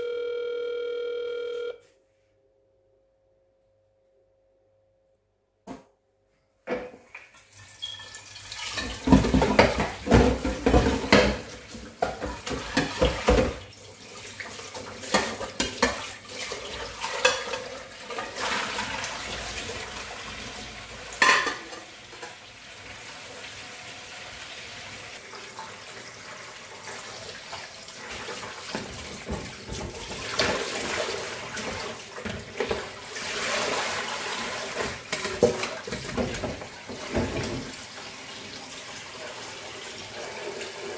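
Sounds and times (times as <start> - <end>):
tap running water into pot: 7.2 - 23.5, 25.3 - 40.9
metal pots and lids clattering: 8.6 - 13.6, 14.8 - 19.1, 21.1 - 22.4, 34.7 - 37.7.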